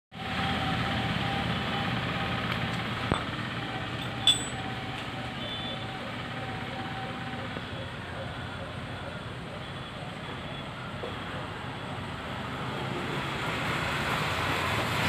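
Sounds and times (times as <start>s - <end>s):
outdoor background noise: 0.1s - 15.0s
ringing click: 4.0s - 4.6s.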